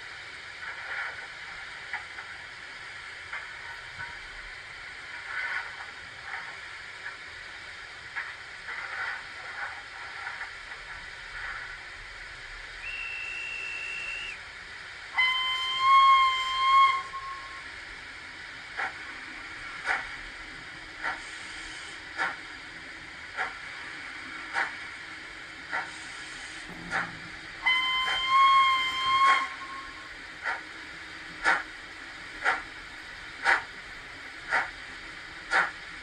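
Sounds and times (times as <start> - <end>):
steam hiss: 0.0 - 36.0
steam puffs: 0.0 - 36.0
high whistle blasts: 12.8 - 14.4, 15.2 - 17.6, 27.6 - 30.1.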